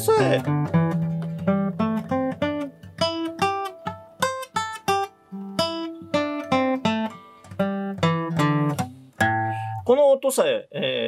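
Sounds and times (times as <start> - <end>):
acoustic guitar single notes picked: 0.0 - 9.9
low ringing guitar notes: 6.4 - 9.9.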